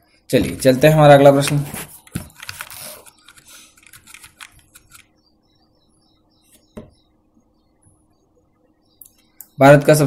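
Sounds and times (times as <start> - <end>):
computer controls clicking: 2.3 - 5.1.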